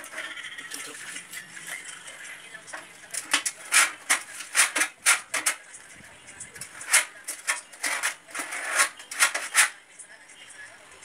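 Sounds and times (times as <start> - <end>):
tool scraping sheet metal: 0.0 - 1.4, 2.7 - 5.6, 6.6 - 9.8.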